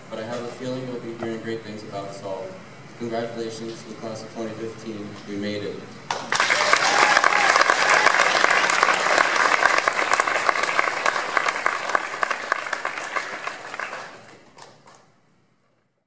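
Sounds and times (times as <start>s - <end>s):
audience applause: 6.1s - 15.0s.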